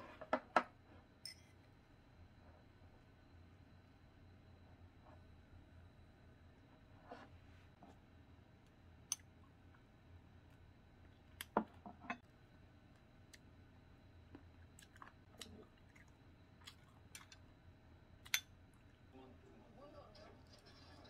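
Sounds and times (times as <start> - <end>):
soft chewing: 14.2 - 17.5.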